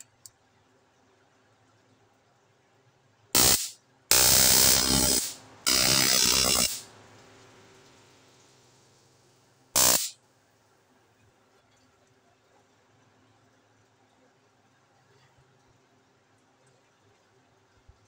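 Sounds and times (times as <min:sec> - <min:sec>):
electric arc crackle: 0:03.4 - 0:06.9, 0:09.8 - 0:10.2.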